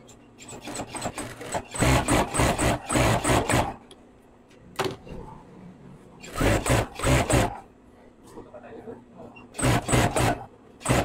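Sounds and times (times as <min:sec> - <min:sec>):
sewing machine stitching: 0:00.4 - 0:03.8, 0:06.2 - 0:07.6, 0:09.6 - 0:11.0.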